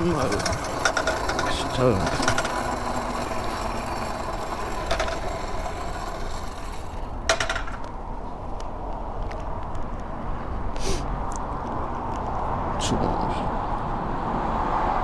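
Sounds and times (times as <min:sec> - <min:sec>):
mini bike mechanical rattle: 0:00.0 - 0:08.0.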